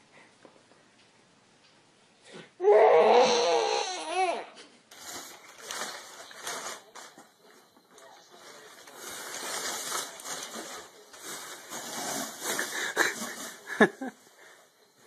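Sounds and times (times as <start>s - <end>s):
plastic packaging crinkling: 4.9s - 13.7s
cardboard rubbing: 11.4s - 13.7s.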